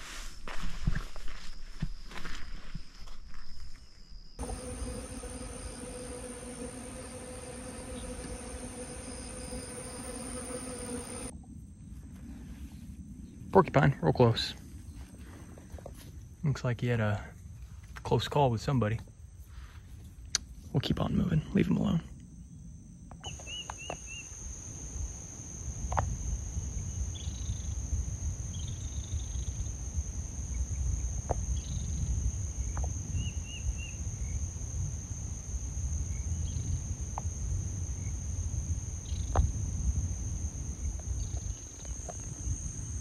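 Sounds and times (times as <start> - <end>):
insects droning: 0.0 - 43.0
bird chirps: 23.2 - 24.3
low wind rumble: 24.5 - 43.0.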